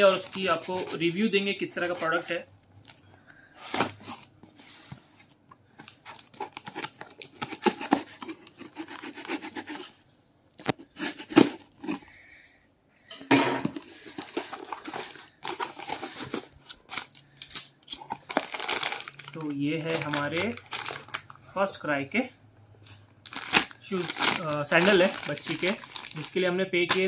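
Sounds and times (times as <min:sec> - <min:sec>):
tape tearing: 0:05.8 - 0:10.0, 0:10.6 - 0:12.0, 0:22.9 - 0:26.3
paper rustling: 0:13.6 - 0:17.1, 0:22.8 - 0:27.0.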